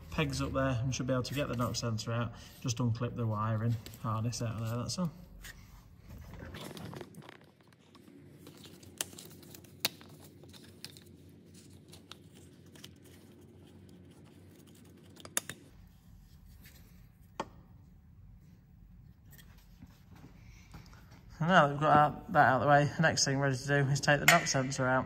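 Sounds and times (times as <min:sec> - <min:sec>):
plastic scraping and rustling: 0:06.1 - 0:15.2.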